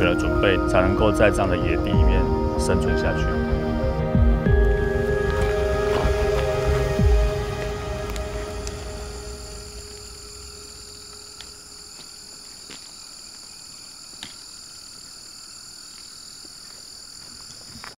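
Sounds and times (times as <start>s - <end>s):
music: 0.0s - 11.6s
insects chirping: 0.0s - 18.0s.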